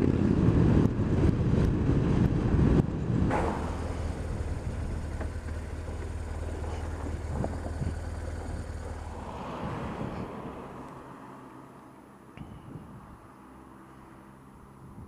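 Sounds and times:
motorcycle engine running: 0:00.0 - 0:10.2
wind buffeting microphone: 0:00.0 - 0:10.9.

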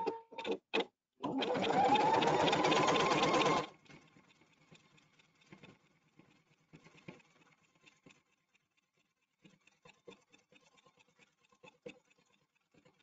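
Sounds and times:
embroidery machine stitching: 0:01.2 - 0:03.8.

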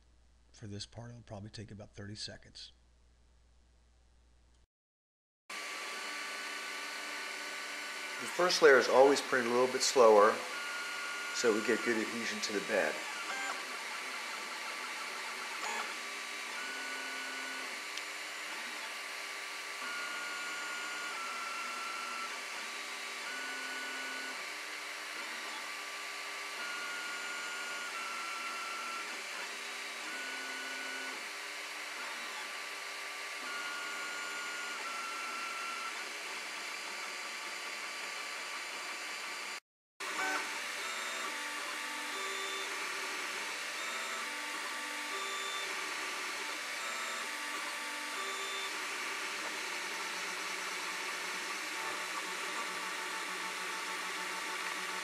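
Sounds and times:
stepper motors whining: 0:08.0 - 0:18.9.

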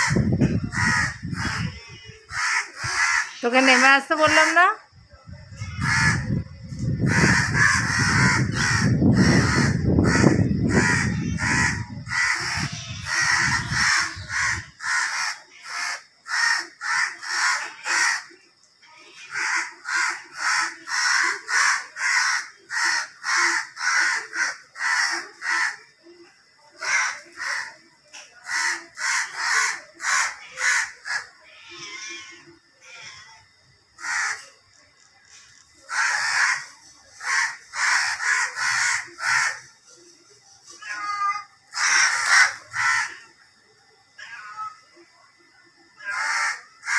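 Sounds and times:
crows cawing: 0:00.0 - 0:04.4, 0:05.6 - 0:18.4, 0:19.2 - 0:25.9, 0:26.7 - 0:32.0, 0:34.0 - 0:34.6, 0:35.8 - 0:39.8, 0:40.9 - 0:43.3, 0:46.0 - 0:46.9.

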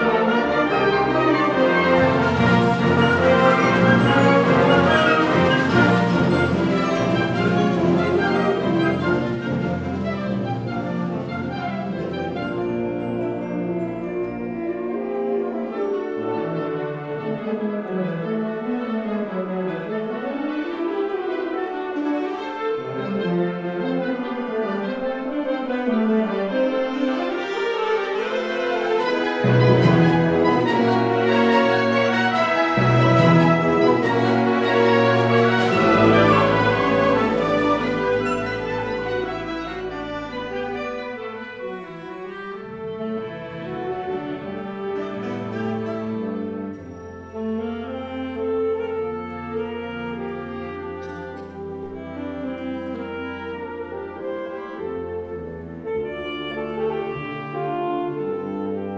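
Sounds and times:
wind band playing: 0:00.0 - 0:58.9.

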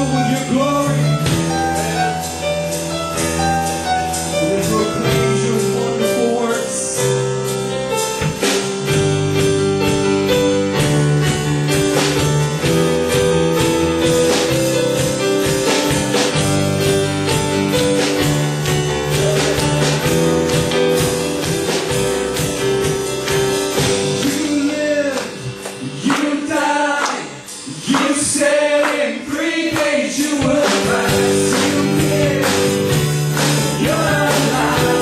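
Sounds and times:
drum kit beats: 0:00.0 - 0:35.0
keyboard chords: 0:00.0 - 0:35.0
electric guitar: 0:07.7 - 0:27.8.

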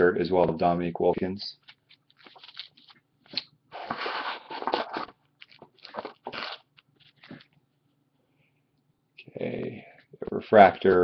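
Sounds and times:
rustling cards: 0:01.6 - 0:07.6.

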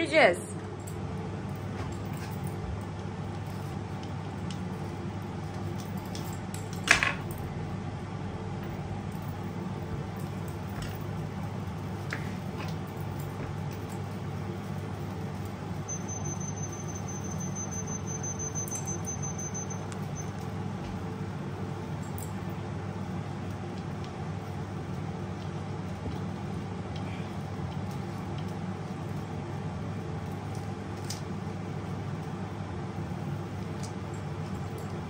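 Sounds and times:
thin high whine: 0:15.8 - 0:20.4.

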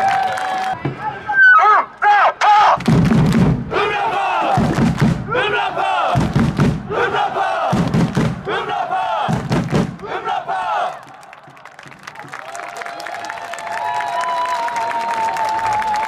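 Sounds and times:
football crowd chanting: 0:03.6 - 0:12.3
bass drum beats: 0:04.6 - 0:05.4, 0:06.2 - 0:06.9, 0:07.7 - 0:08.5, 0:09.2 - 0:10.0.

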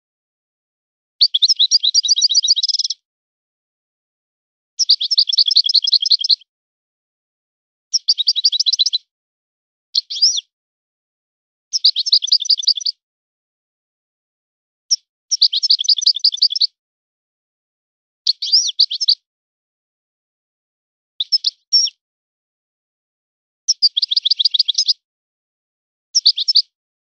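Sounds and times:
goldfinch twittering trills: 0:01.2 - 0:03.0, 0:18.4 - 0:19.2.

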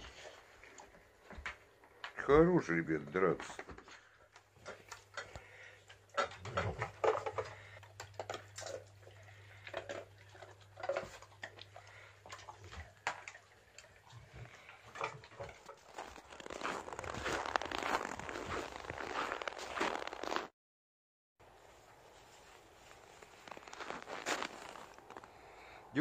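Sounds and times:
pet eating from metal bowl: 0:00.0 - 0:17.8.

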